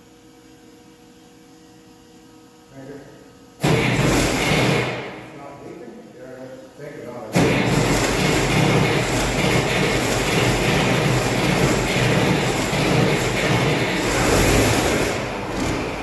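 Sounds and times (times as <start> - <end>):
tractor engine running loud: 7.4 - 16.0.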